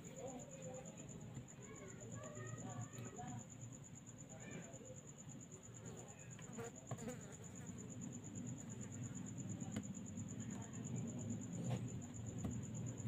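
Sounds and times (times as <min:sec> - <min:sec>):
cricket pulsing trill: 0:00.0 - 0:13.0
faint low hum: 0:00.0 - 0:13.0.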